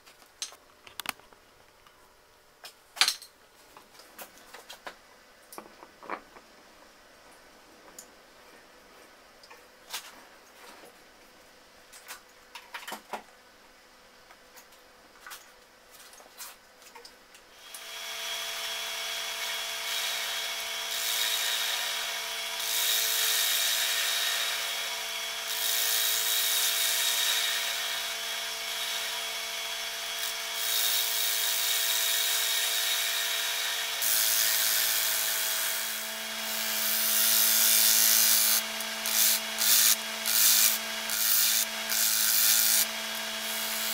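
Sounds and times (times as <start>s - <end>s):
tool cutting spinning wood: 17.7s - 43.9s.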